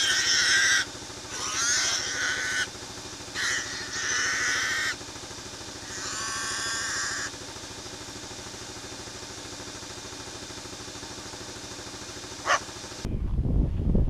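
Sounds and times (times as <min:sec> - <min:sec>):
pig squealing: 0:00.0 - 0:02.7, 0:03.3 - 0:05.0, 0:05.8 - 0:07.3.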